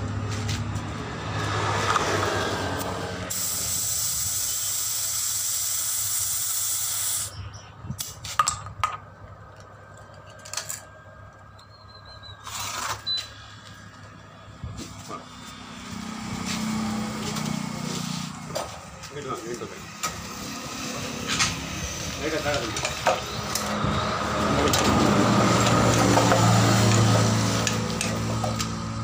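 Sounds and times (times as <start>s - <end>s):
compressed air hissing into tyre: 3.3s - 7.4s.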